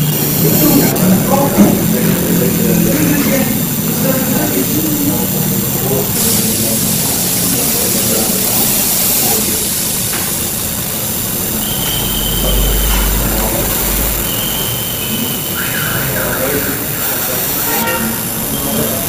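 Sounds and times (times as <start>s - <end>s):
laser engraving hiss: 0.0s - 19.0s
short high tone: 11.5s - 15.7s.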